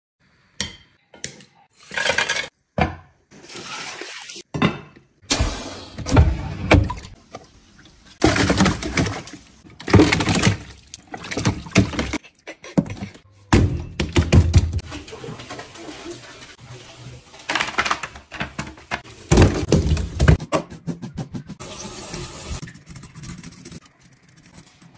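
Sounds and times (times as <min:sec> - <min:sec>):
fish splashing in metal tanks: 0:03.3 - 0:04.5, 0:06.7 - 0:13.2, 0:13.9 - 0:20.3.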